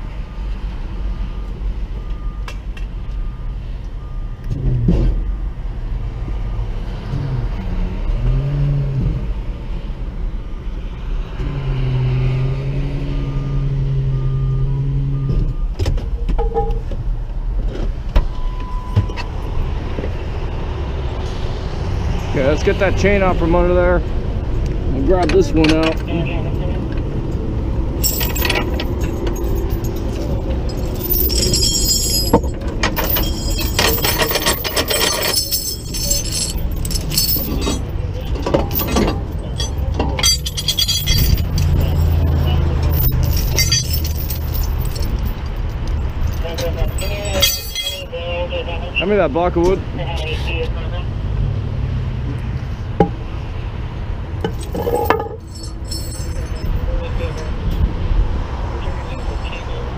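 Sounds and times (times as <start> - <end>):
engines and freeway traffic rumble: 0.0 - 59.9
chain clinking and rattling: 28.0 - 48.1, 54.4 - 57.5.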